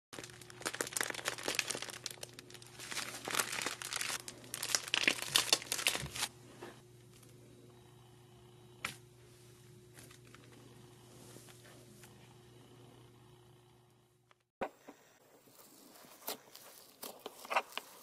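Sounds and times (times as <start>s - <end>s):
slime crackling from piping bags: 0.2s - 6.3s.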